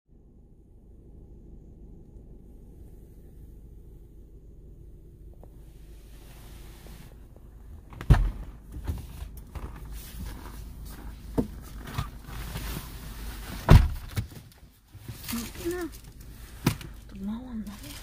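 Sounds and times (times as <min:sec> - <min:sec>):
rustling: 0:05.4 - 0:18.0
dull thumps and knocks: 0:11.3 - 0:12.1.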